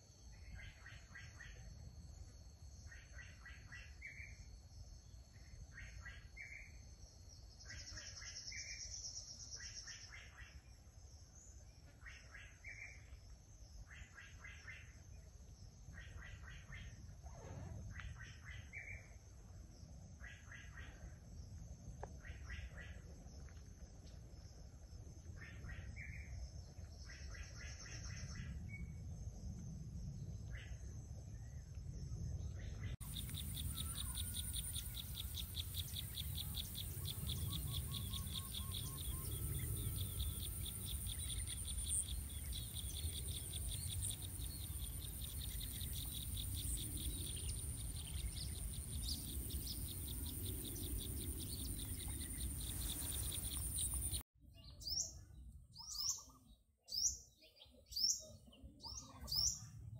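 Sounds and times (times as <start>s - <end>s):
insects pulsing drone: 0.0s - 54.2s
birds chirping: 32.5s - 59.8s.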